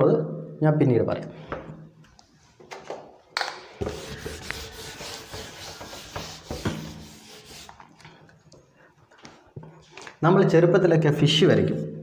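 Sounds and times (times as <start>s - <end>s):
eraser knocking on board: 3.8s - 7.2s
eraser rubbing on whiteboard: 3.8s - 8.0s.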